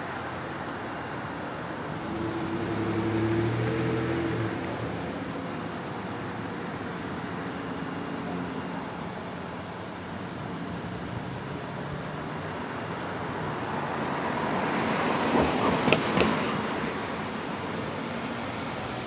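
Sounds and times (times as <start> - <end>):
road traffic hiss: 0.0 - 19.0.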